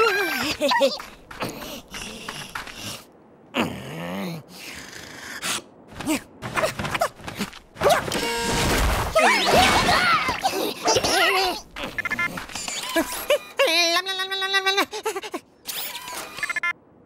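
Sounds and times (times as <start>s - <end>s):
squeaky character vocalizations: 9.1s - 16.6s.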